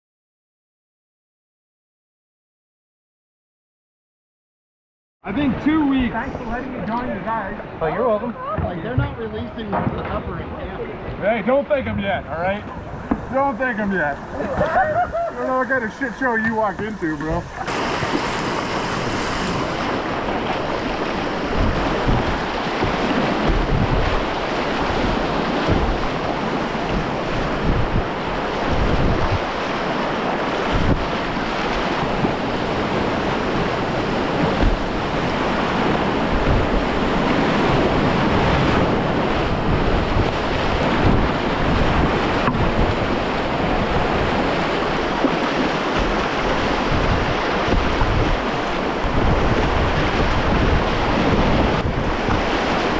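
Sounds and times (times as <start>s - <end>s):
paddle splashes: 5.5s - 52.9s
river rapids rushing: 12.0s - 52.9s.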